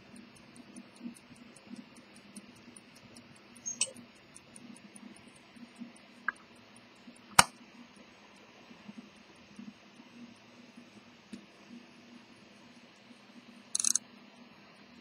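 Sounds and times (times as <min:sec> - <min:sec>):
watch ticking: 0:00.0 - 0:14.0
louder clicks: 0:13.8 - 0:14.0.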